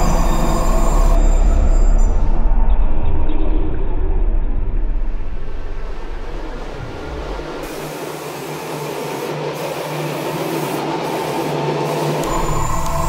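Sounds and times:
airbrush spraying hiss: 0:07.6 - 0:13.0.

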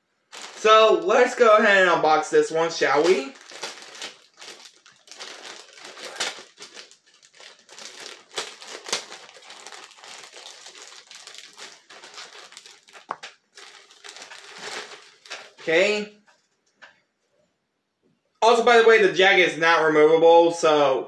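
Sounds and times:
plastic bag crinkling: 0:00.3 - 0:01.8, 0:02.5 - 0:15.8.

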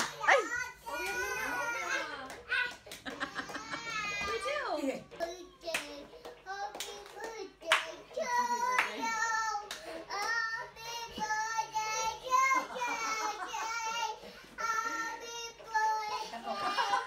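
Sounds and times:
sharp hand claps: 0:00.0 - 0:00.3, 0:02.1 - 0:04.0, 0:05.6 - 0:08.1, 0:08.7 - 0:10.4
girl singing: 0:05.2 - 0:17.0.

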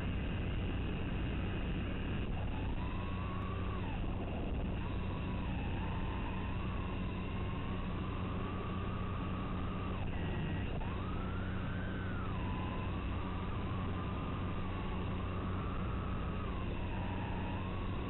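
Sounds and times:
low hum: 0:00.0 - 0:18.0
quadcopter motors whining: 0:02.2 - 0:18.0.

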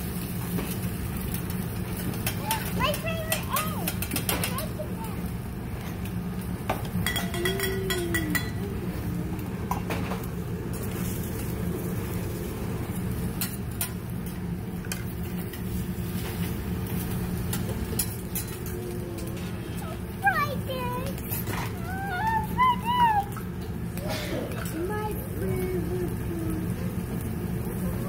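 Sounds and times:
steady low hum: 0:00.0 - 0:28.0
utensils and dishes clinking: 0:05.8 - 0:12.1, 0:13.2 - 0:19.9.

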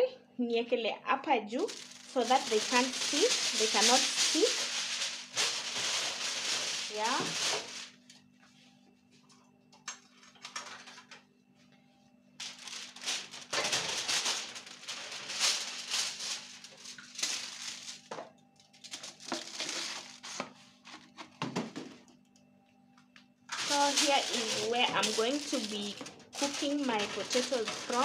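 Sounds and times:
aluminium foil crinkling: 0:01.5 - 0:08.1, 0:10.2 - 0:11.2, 0:12.4 - 0:21.3, 0:23.5 - 0:28.0.

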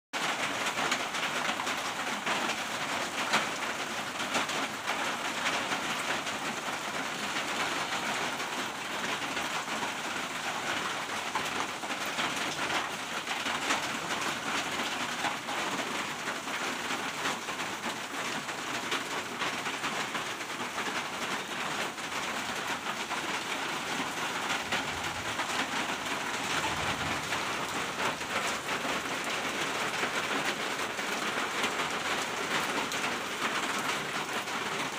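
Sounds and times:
rain on a metal roof: 0:00.1 - 0:34.9
thunder rumbling: 0:24.6 - 0:29.1.

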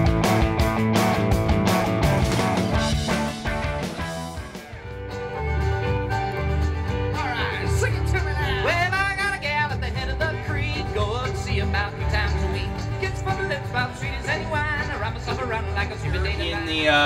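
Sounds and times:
acoustic guitar strumming: 0:00.0 - 0:17.0
banjo: 0:00.0 - 0:17.0
upright bass: 0:00.0 - 0:17.0
man singing: 0:07.1 - 0:17.0.

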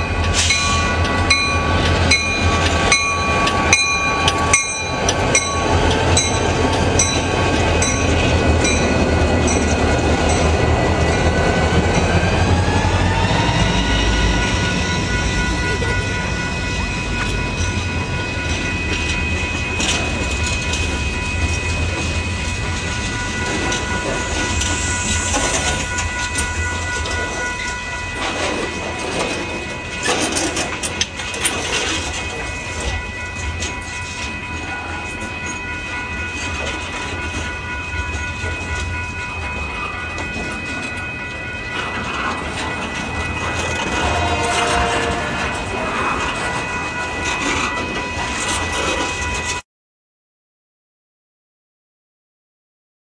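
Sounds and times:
crossing bell ringing: 0:00.0 - 0:49.6
freight train rumbling past: 0:00.0 - 0:49.6
steel wheels clacking over rail joints: 0:17.2 - 0:49.6.

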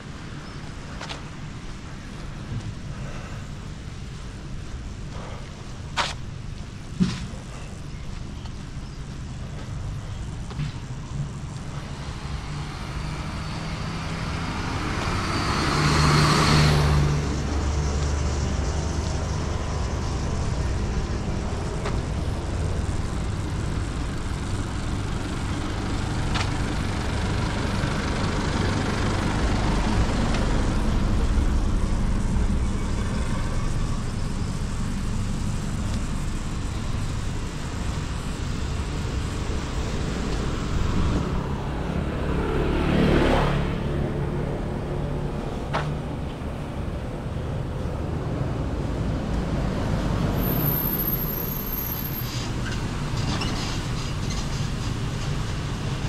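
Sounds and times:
cars passing by: 0:00.0 - 0:56.0
motor scooter passing: 0:36.7 - 0:46.2.

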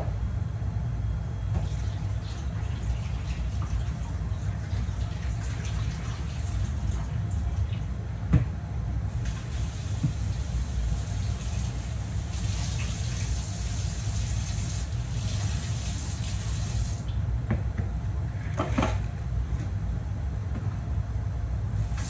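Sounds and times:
gas stove hiss: 0:09.1 - 0:17.1, 0:21.8 - 0:22.0.

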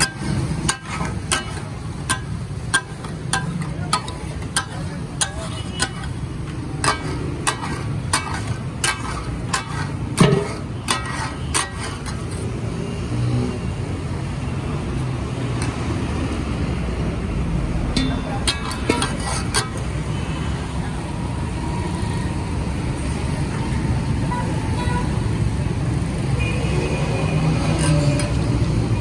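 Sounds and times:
metal spatulas clacking on griddle: 0:00.0 - 0:12.4, 0:17.9 - 0:20.0.

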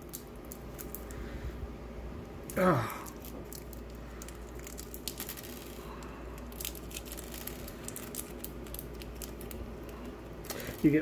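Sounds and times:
plastic bag crinkling: 0:02.4 - 0:11.0.

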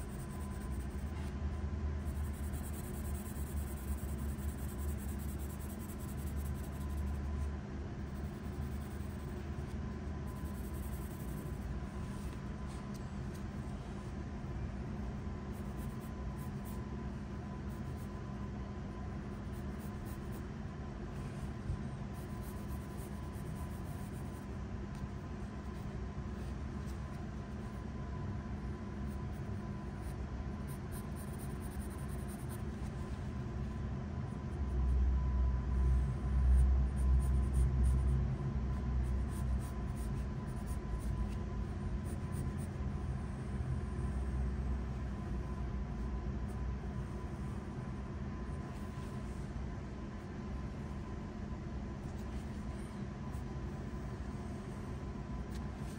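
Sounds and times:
faint hum: 0:00.0 - 0:55.9
low background rumble: 0:00.0 - 0:55.9
pencil shading on paper: 0:02.0 - 0:14.0, 0:15.4 - 0:18.2, 0:19.2 - 0:27.8, 0:29.0 - 0:33.3, 0:36.6 - 0:38.0, 0:38.8 - 0:41.4.

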